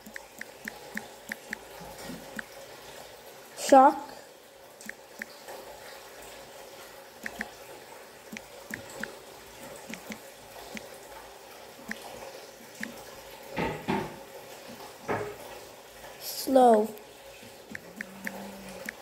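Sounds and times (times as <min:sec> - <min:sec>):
phone screen keyboard taps: 0:00.0 - 0:01.6, 0:07.2 - 0:07.5, 0:09.9 - 0:10.9.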